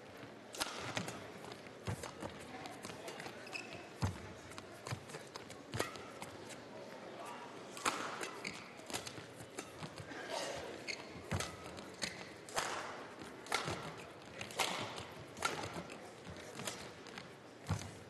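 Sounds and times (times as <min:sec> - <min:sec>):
shuttlecock hit by rackets: 0:00.6 - 0:01.2, 0:07.8 - 0:09.2, 0:12.5 - 0:16.0.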